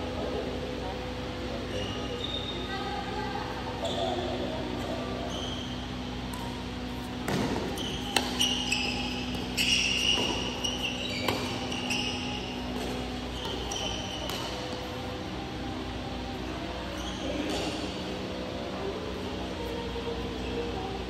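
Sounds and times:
shoes squeaking on court: 1.6 - 2.7, 3.8 - 15.2, 16.7 - 18.2
rackets striking shuttlecock: 6.2 - 14.9.

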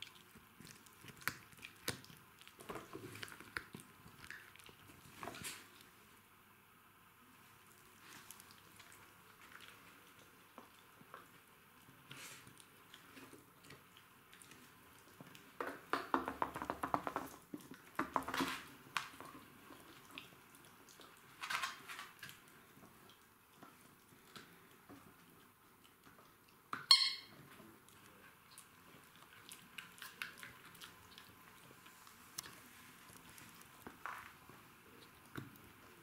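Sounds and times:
dogs chewing and gnawing: 0.0 - 6.0, 7.6 - 36.0.

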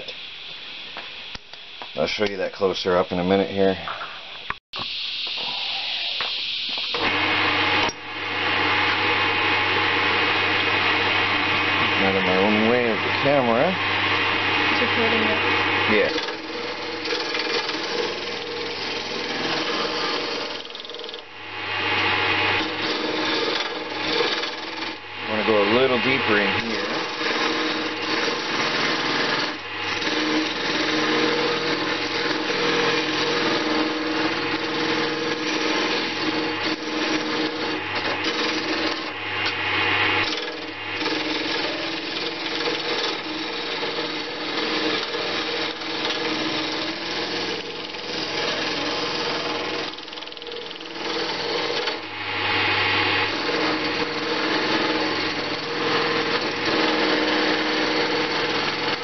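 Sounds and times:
lathe motor hum: 5.2 - 59.0
turning tool scraping wood: 14.2 - 39.2, 40.1 - 52.1, 53.2 - 59.0.

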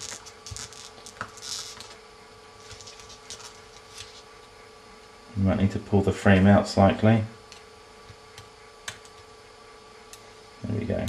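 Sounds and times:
small clicks and scraping rustles: 0.0 - 2.0, 2.6 - 4.3.

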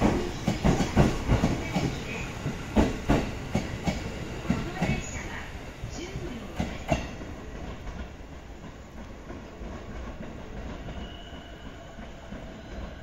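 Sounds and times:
train wheels clicking over rail joints: 0.0 - 5.2
train running rumble: 0.0 - 13.0.

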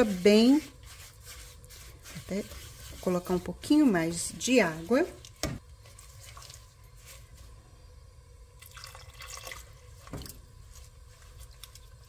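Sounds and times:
spatula scraping wet sugar: 0.0 - 7.4
water trickling into a pot: 5.2 - 7.5, 8.4 - 12.0.

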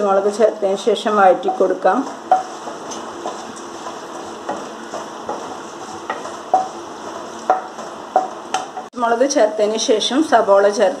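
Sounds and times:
food sizzling in hot oil: 0.0 - 11.0
spatula tapping and scraping pan: 1.2 - 8.9.

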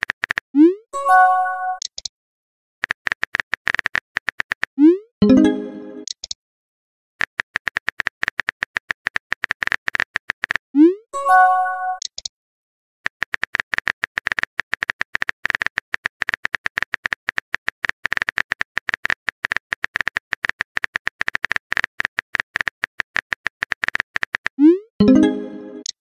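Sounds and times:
keypress click sound effects: 0.0 - 2.1, 4.6 - 6.4, 7.6 - 12.3, 22.3 - 26.0.

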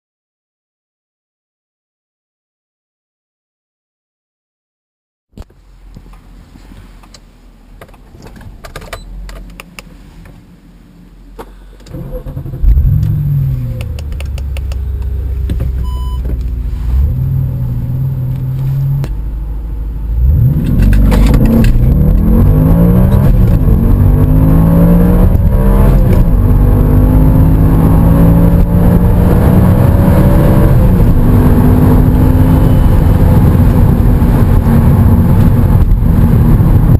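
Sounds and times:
car engine revving and accelerating: 20.0 - 36.9.

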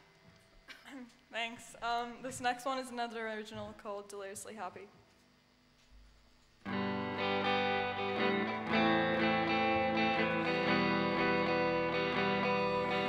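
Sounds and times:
electric guitar chords: 6.6 - 13.0
live band playing: 6.7 - 13.0.

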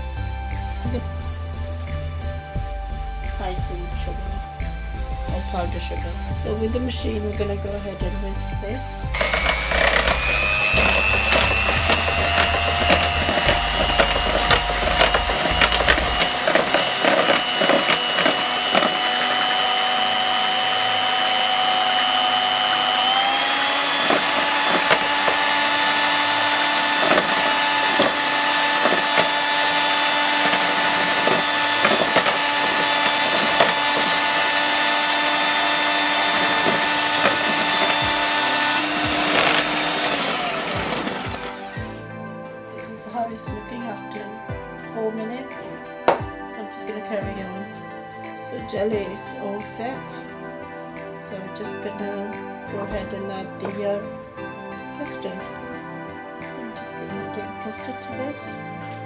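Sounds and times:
electric hand mixer whirring: 9.0 - 42.4
beaters clicking in plastic bowl: 23.8 - 41.8.

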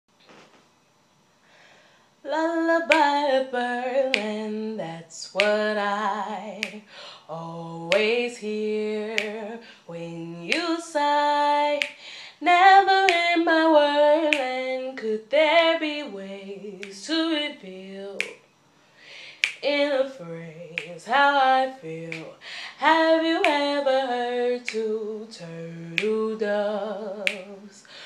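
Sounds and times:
woman singing unaccompanied: 2.2 - 18.5, 19.3 - 28.0.

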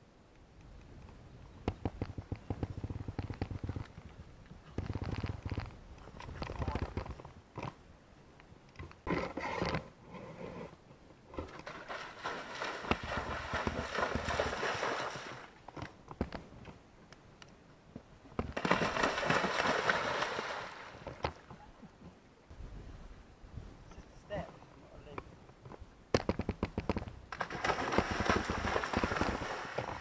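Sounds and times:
horse splashing through water: 11.4 - 15.6, 18.4 - 21.5, 27.3 - 30.0.

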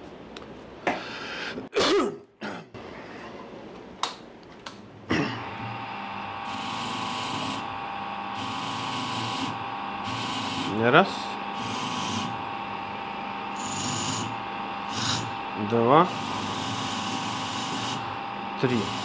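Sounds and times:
bench grinder whine: 5.2 - 19.0
hissing scrub on wire wheel: 18.6 - 19.0.

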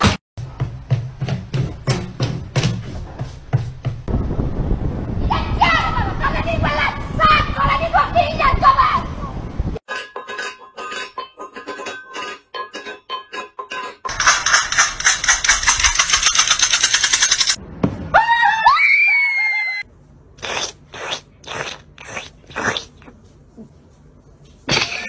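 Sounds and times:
loud fast rattling: 14.1 - 17.6.

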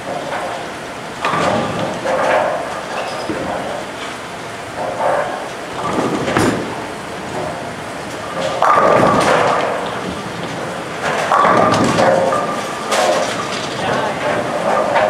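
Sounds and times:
bowling ball rolling on wooden lane: 0.0 - 15.0
bowling pins crashing: 0.0 - 15.0
bowling ball knock: 4.8 - 15.0.

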